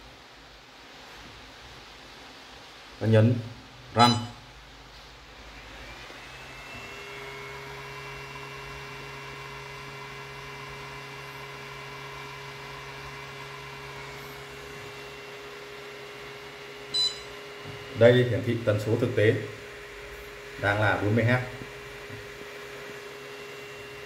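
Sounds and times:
electric motor whine: 5.6 - 16.2.

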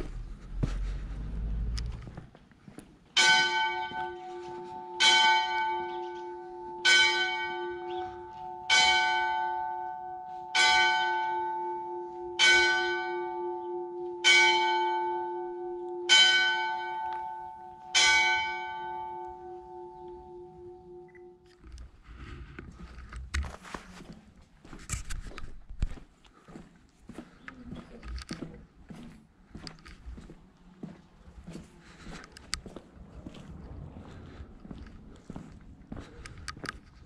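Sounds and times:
church bell striking: 3.2 - 21.5.

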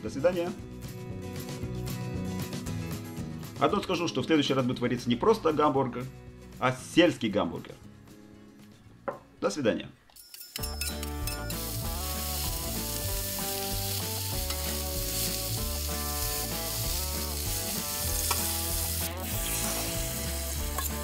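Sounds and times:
background music with bass line: 0.0 - 9.0, 10.8 - 21.0
food sizzling on a griddle: 11.3 - 21.0
spatula scraping griddle: 11.4 - 21.0.

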